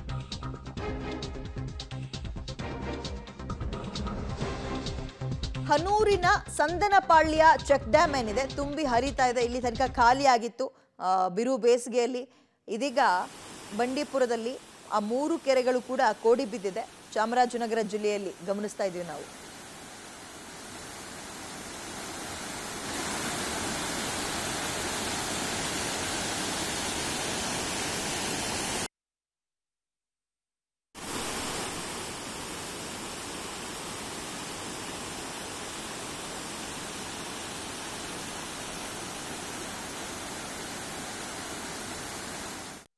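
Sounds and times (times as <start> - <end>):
water rushing over spillway: 13.2 - 28.9, 31.0 - 42.9.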